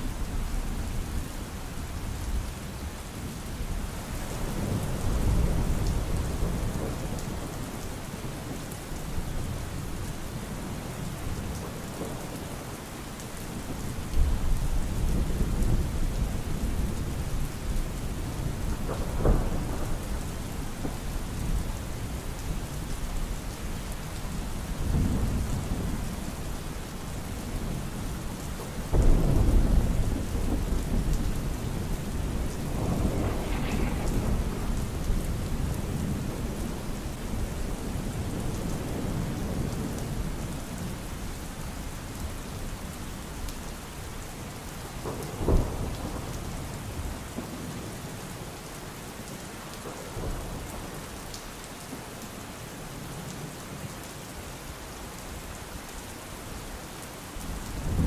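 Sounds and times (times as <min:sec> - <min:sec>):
rain hiss: 0:00.0 - 0:58.0
thunder rumbling: 0:14.3 - 0:22.3, 0:24.4 - 0:40.5.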